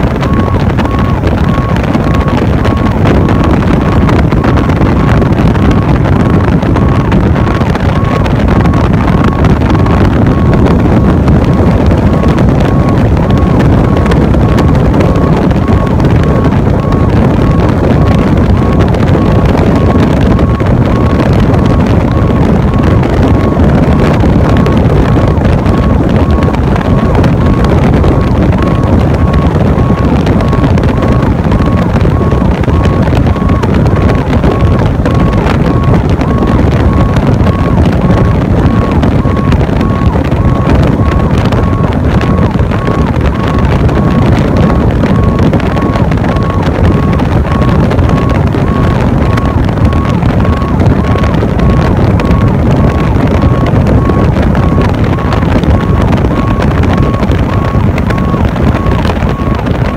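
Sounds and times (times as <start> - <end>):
truck engine and tyre rumble: 0.0 - 59.9
wind buffeting microphone: 0.0 - 59.9
faint high beep: 25.8 - 59.9.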